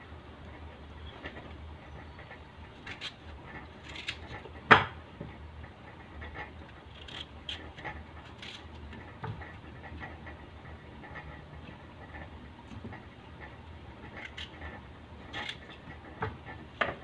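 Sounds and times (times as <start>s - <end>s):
knife scraping vegetable: 2.7s - 4.5s, 6.7s - 9.6s.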